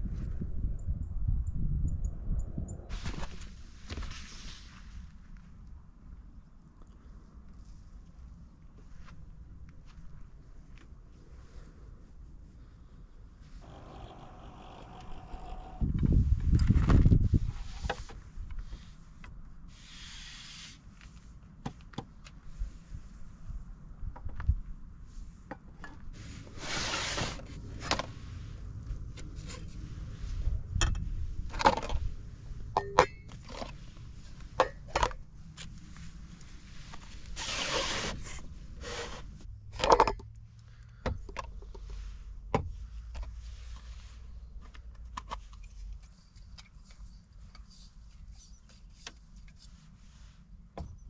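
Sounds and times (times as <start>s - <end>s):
scraping rustles: 26.1s - 32.6s, 35.5s - 39.5s
steady low rumble: 27.4s - 37.4s
metal and plastic items clinking: 39.7s - 40.3s.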